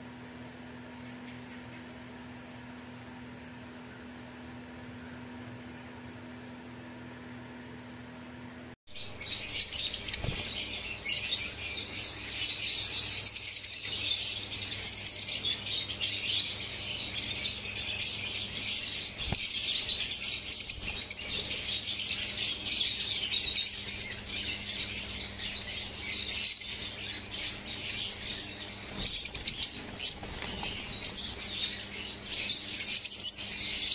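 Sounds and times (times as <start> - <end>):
birds chirping: 8.9 - 33.9
wings fluttering: 9.0 - 33.9.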